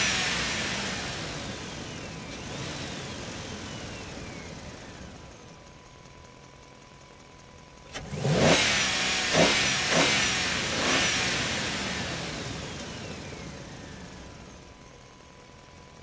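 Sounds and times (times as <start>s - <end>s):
engine revving: 0.0s - 5.3s, 7.9s - 14.6s.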